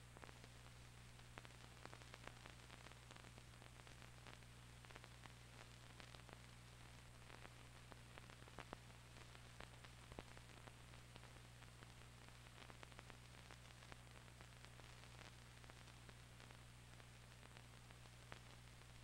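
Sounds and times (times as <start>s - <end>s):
old film soundtrack hum and hiss: 0.0s - 19.0s.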